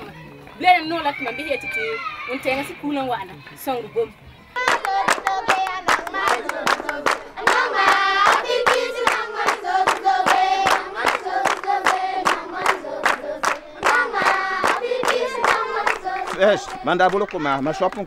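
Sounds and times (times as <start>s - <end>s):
children singing in unison: 4.6s - 17.6s
hands clapping in rhythm: 4.6s - 18.0s.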